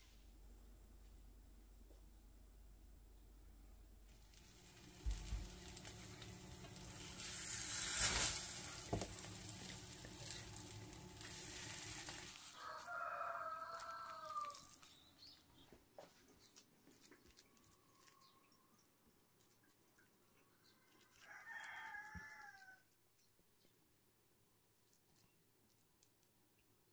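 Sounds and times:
steady hum: 0.0 - 12.4
batter sizzling in frying pan: 4.1 - 15.4
rooster crowing: 12.1 - 14.8, 21.0 - 22.8.

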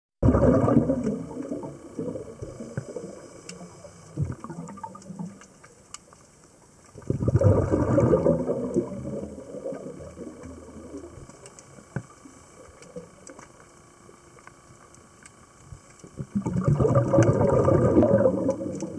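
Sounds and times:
exhaled bubbles gurgling: 0.2 - 5.8, 6.9 - 14.1, 16.0 - 18.9
faint clicks: 1.0 - 7.2, 7.9 - 18.9.

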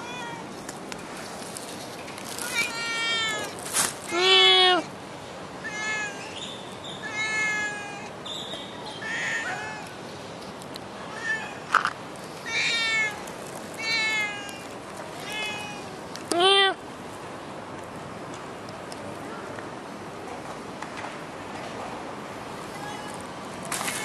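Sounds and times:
cat meowing: 2.4 - 4.9, 5.6 - 6.3, 7.0 - 8.1, 12.4 - 13.2, 13.8 - 16.8.

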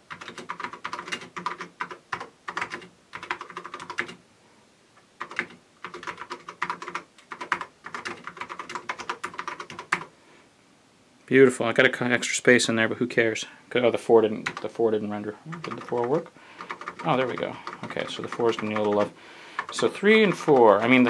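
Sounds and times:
fast typing key clicks: 0.1 - 4.2, 5.2 - 10.1, 15.6 - 21.0.

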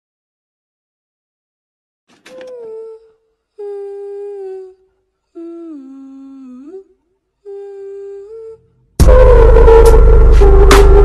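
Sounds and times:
person humming a slow tune: 2.3 - 11.0.

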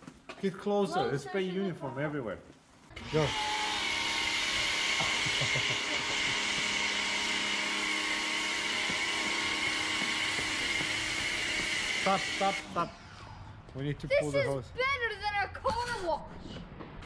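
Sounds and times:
pump motor humming: 3.0 - 13.3
pressure washer spray hissing: 4.8 - 12.9.

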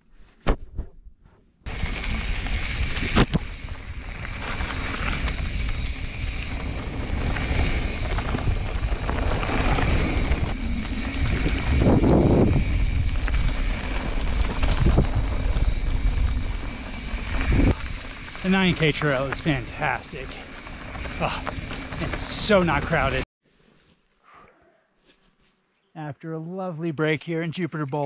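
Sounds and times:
bike tyres rolling on dirt: 1.7 - 23.2
wind buffeting microphone: 1.7 - 23.2.

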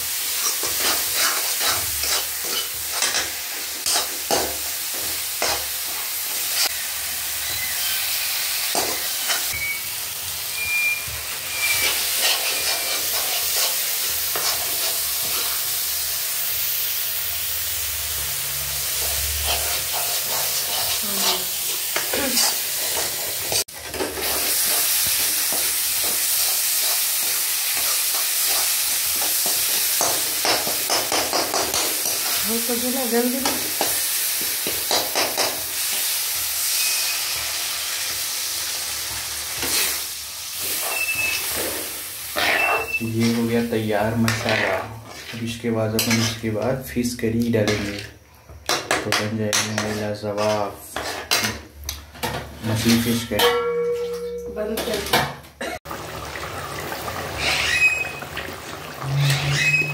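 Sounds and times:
masala sizzling in pan: 0.0 - 53.3, 55.9 - 59.9
metal spatula scraping pan: 0.4 - 4.4, 10.6 - 15.6, 19.0 - 24.8, 40.6 - 46.6, 47.6 - 48.1, 49.1 - 51.6, 57.3 - 58.2, 59.0 - 59.9.

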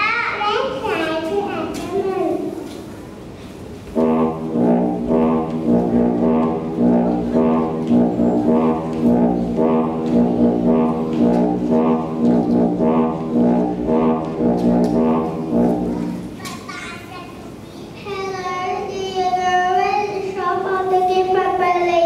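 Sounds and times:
brass-led rhythmic music: 4.0 - 16.4.

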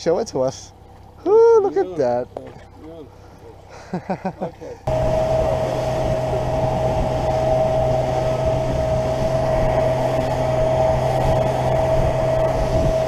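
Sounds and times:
outboard motor running: 0.0 - 3.9, 4.6 - 13.0
wind: 0.0 - 13.0
water rushing: 4.9 - 13.0.

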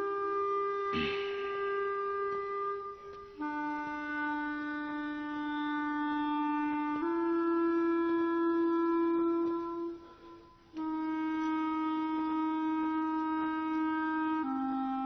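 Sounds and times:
long-held wind instrument notes: 0.0 - 15.0
falling swoosh: 1.0 - 2.3.

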